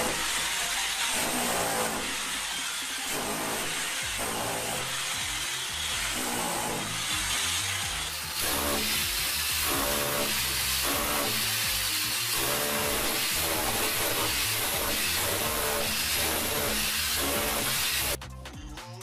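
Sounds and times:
electric chipping hammer on wall: 0.0s - 18.2s.

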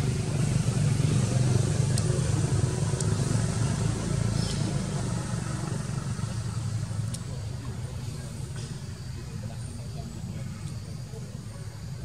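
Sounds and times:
engine droning: 0.0s - 12.0s
faint sharp ticks: 1.9s - 2.1s, 2.9s - 3.2s.

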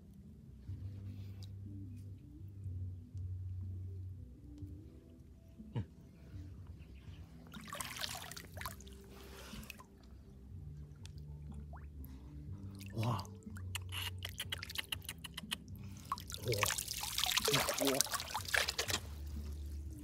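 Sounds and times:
hands sloshing through muddy water: 7.4s - 9.9s, 15.8s - 20.0s
water dripping off hands: 7.5s - 8.9s, 12.8s - 20.0s.

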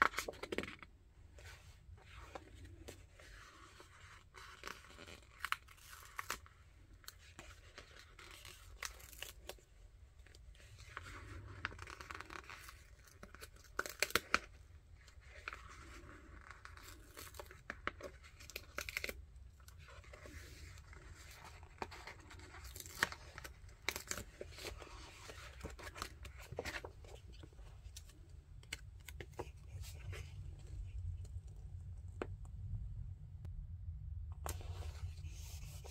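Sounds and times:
page turning: 0.0s - 31.4s, 34.4s - 35.9s
paper crinkling: 0.0s - 31.7s.

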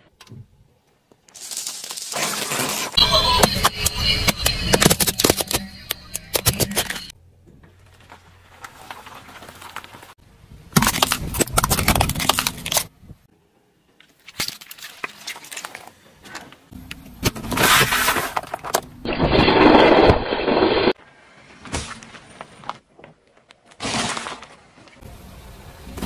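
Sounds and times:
tyre crushing plastic toys: 10.8s - 12.9s, 17.2s - 20.0s, 23.4s - 25.0s.

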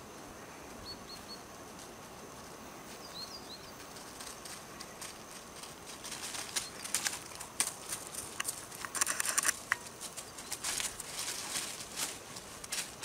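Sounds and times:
paws rustling through dry leaves: 1.7s - 13.0s.

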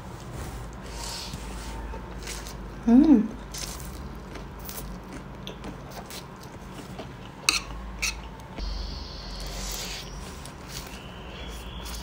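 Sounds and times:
chewing: 3.4s - 8.3s.

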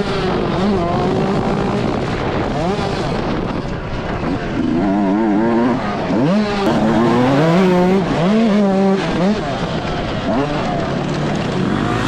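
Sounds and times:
motocross engine revving: 0.0s - 12.0s
wind rushing over microphone: 0.0s - 12.0s.

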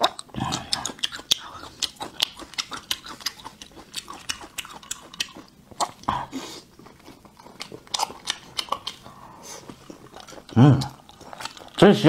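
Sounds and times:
wet mouth smacks: 0.0s - 6.1s
person chewing food: 0.0s - 12.0s.

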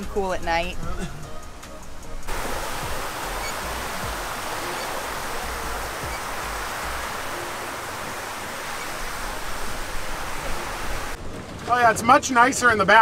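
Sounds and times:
fountain water jets spraying: 2.2s - 11.2s.

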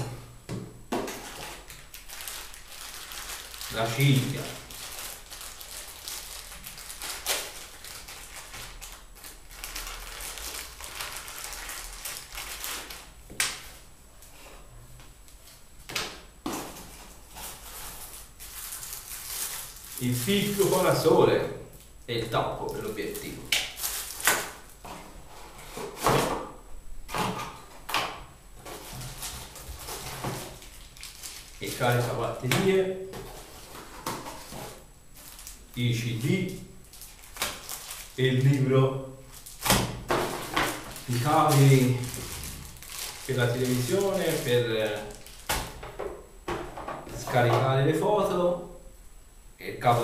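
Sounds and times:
cardboard packaging scraping and rustling: 1.0s - 13.1s, 16.5s - 20.8s, 23.8s - 26.4s, 28.6s - 32.2s, 33.1s - 38.2s, 39.4s - 45.6s
plastic bag crinkling: 1.1s - 13.8s, 17.1s - 21.1s, 22.7s - 24.8s, 28.9s - 32.5s, 33.2s - 45.8s
plastic bag sharp crackles: 1.1s - 13.8s, 17.5s - 21.0s, 22.8s - 24.8s, 29.1s - 32.4s, 34.4s - 45.8s.

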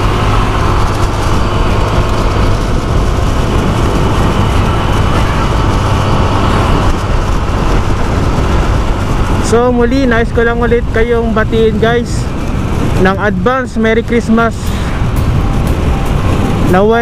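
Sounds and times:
motorcycle engine droning: 0.0s - 17.0s
wind rushing over microphone: 0.0s - 17.0s.

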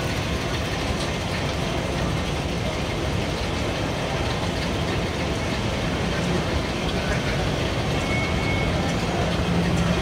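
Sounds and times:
escalator rumble and hiss: 0.0s - 10.0s.

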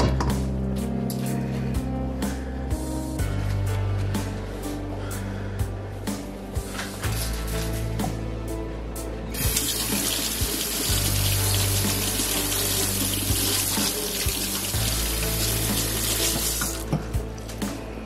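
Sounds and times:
background music: 0.0s - 18.0s
running water rushing: 9.4s - 16.9s.

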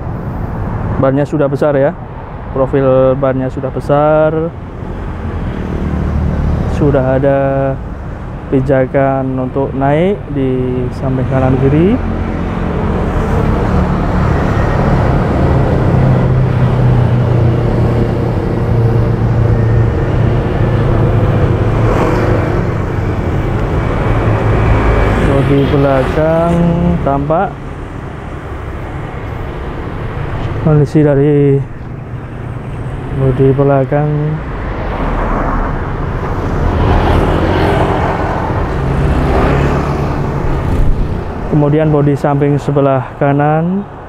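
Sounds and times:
traffic and tyre noise: 0.0s - 44.0s
low engine drone: 9.2s - 42.8s.

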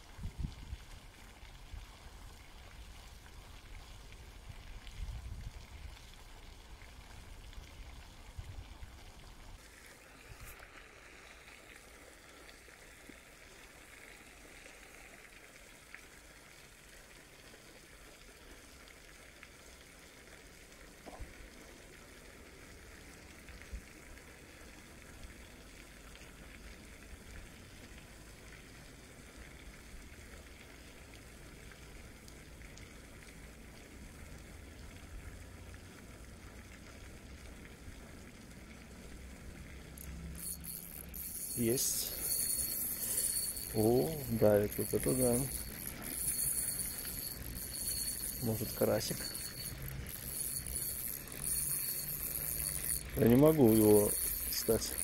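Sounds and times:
wind rumble on microphone: 0.0s - 0.9s, 4.5s - 5.9s
running water: 0.0s - 55.0s.

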